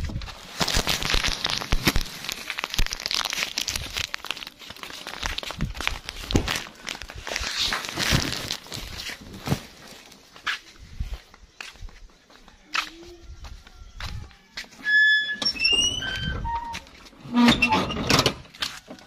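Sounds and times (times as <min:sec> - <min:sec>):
plastic packaging crinkling: 0:00.2 - 0:10.2.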